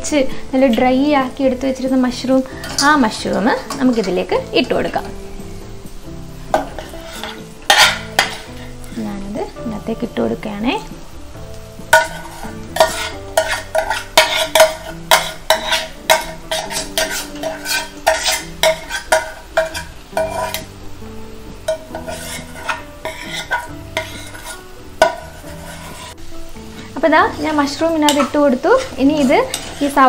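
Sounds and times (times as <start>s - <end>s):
spoon scraping metal pans: 2.4s - 5.2s, 6.4s - 9.0s, 11.8s - 20.8s, 21.6s - 30.0s.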